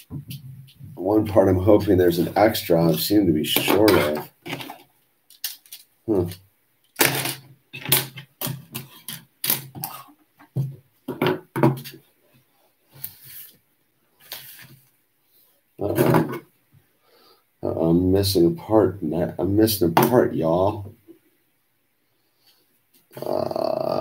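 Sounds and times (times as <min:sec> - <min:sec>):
man muttering: 0:23.1 - 0:24.0.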